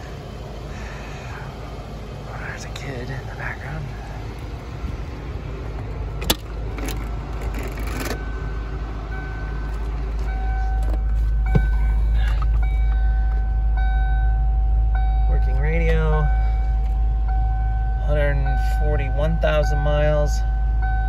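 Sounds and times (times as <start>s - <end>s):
car engine idling: 0.0s - 21.0s
car door opening: 5.8s - 8.2s, 9.6s - 13.5s
thump of person sitting down: 11.5s - 11.9s.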